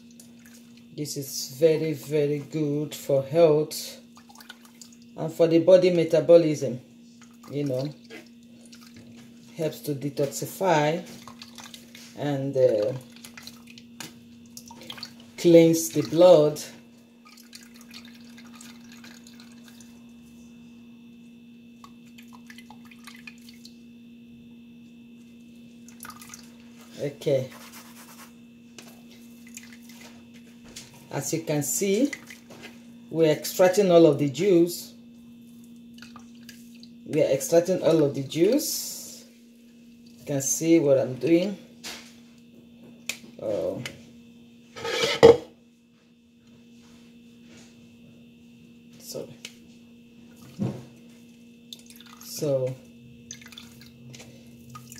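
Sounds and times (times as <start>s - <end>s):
faint steady hum: 0.0s - 54.9s
juice dripping into a jug: 4.1s - 5.2s, 11.1s - 12.1s, 12.8s - 16.2s, 17.2s - 20.2s, 21.7s - 23.8s, 25.8s - 26.7s, 29.1s - 30.4s, 35.6s - 37.2s, 51.6s - 52.4s, 53.1s - 54.9s.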